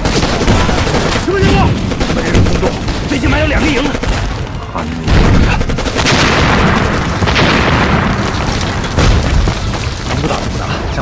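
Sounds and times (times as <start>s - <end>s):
heavy explosion booms: 5.1s - 10.6s.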